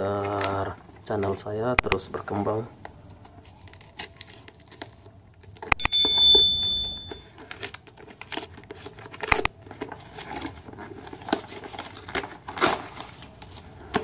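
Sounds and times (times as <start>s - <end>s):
wrapping paper crinkling and tearing: 3.4s - 5.4s, 7.4s - 14.0s
bright bell-like ding: 5.8s - 7.2s.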